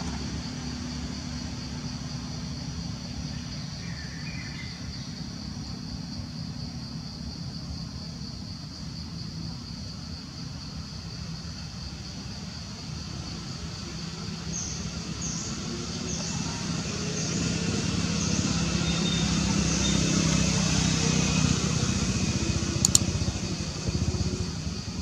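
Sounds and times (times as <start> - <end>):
vehicle engine running: 0.0 - 4.1, 11.9 - 25.0
high chirps of birds or insects: 0.0 - 25.0
sharp click: 22.8 - 23.1.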